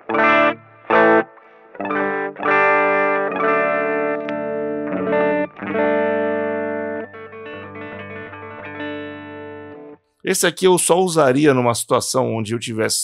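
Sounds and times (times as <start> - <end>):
electric guitar chords: 0.0 - 10.1.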